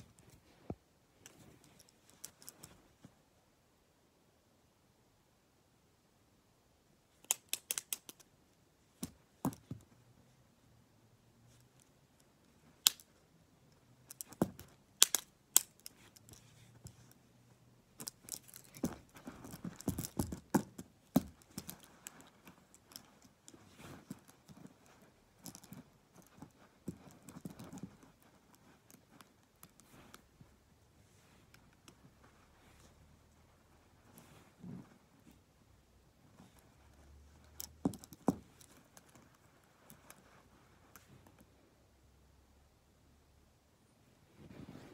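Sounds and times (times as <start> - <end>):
plastic pens clacking: 7.2 - 8.3, 14.0 - 17.2, 18.0 - 29.8
handling rustle: 11.5 - 35.5.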